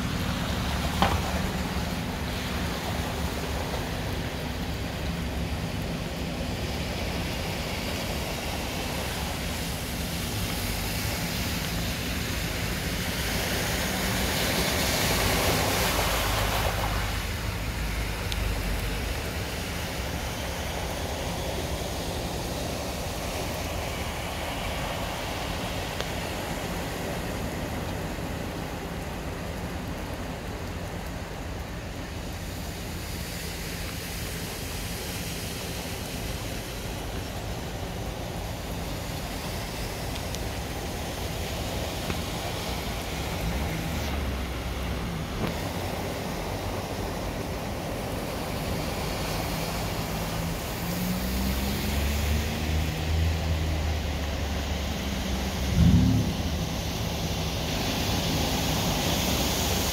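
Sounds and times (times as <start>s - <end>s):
tyres splashing through floodwater: 0.0s - 59.9s
low engine rumble: 53.4s - 59.0s.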